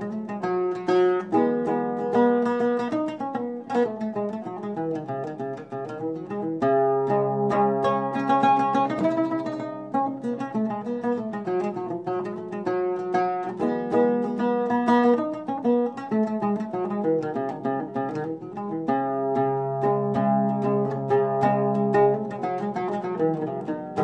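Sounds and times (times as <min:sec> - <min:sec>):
oud melody: 0:00.0 - 0:24.0.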